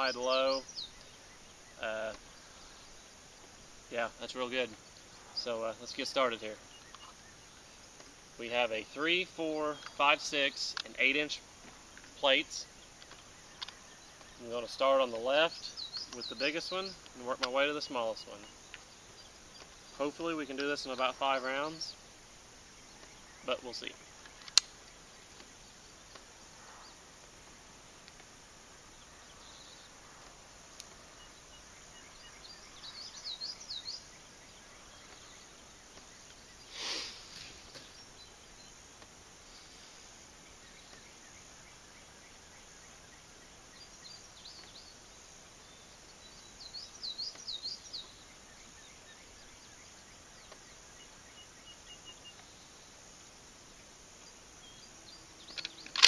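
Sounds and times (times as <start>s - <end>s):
songbird chirping: 0.0s - 56.0s
sharp click: 24.2s - 24.8s, 55.5s - 56.0s.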